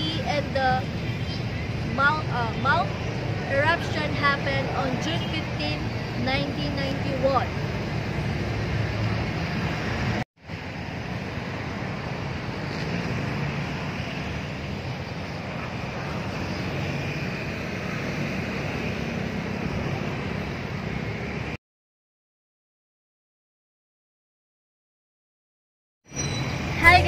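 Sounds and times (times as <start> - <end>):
road traffic: 0.0 - 21.6, 26.1 - 27.0.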